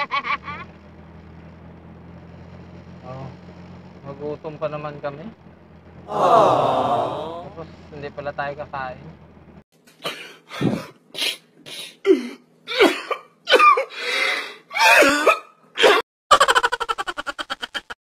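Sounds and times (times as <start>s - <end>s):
man sobbing: 6.1s - 7.5s.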